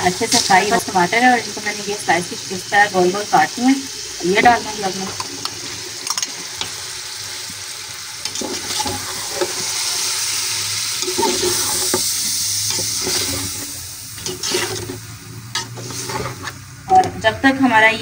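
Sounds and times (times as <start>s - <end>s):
food sizzling in hot oil: 0.0s - 17.8s
metal spatula scraping pot: 8.2s - 10.1s, 11.0s - 16.7s.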